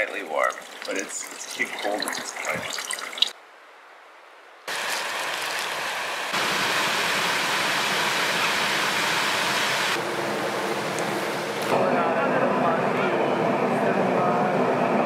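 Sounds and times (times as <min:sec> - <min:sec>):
stream water rushing: 0:04.7 - 0:10.1.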